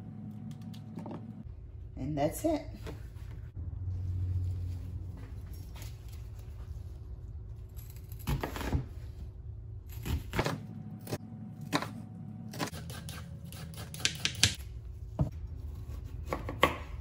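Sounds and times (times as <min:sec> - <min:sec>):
knife chopping on cutting board: 0:15.9 - 0:17.0.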